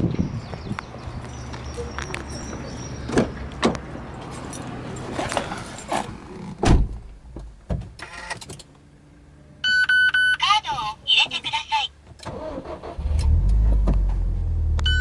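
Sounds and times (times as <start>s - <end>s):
car door shutting with thud: 6.6s - 7.0s.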